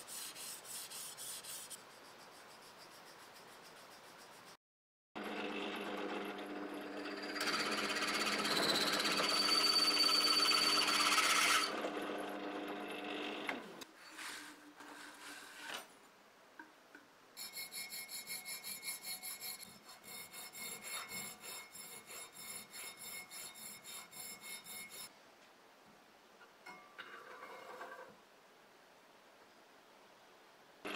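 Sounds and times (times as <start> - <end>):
hand file rasping metal: 0.0 - 4.6, 17.4 - 25.1
drill press motor running: 5.2 - 13.6
drill bit cutting brass: 7.1 - 11.7.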